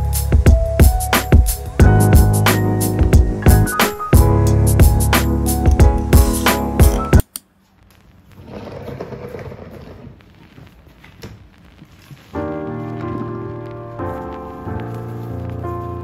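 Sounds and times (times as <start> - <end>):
background music with a beat: 0.0 - 7.2
plastic boxes rustling and scraping: 8.4 - 10.2.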